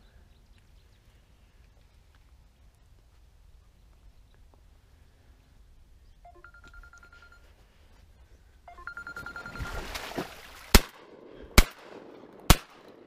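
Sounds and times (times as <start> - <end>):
trilling phone ringtone: 6.3 - 7.5, 8.7 - 9.9
shotgun shot: 10.7 - 13.0.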